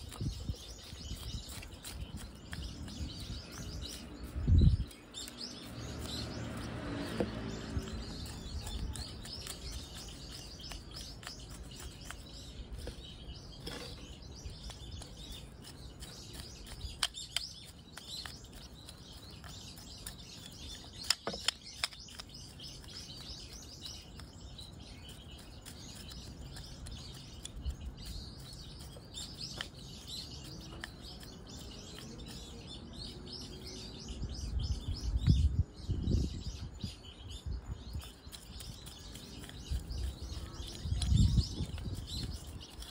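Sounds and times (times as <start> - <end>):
small birds chirping: 0.0 - 42.9.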